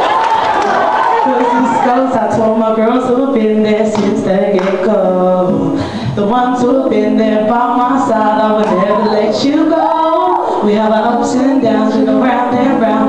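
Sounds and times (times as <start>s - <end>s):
girls singing through speakers: 1.0s - 13.0s.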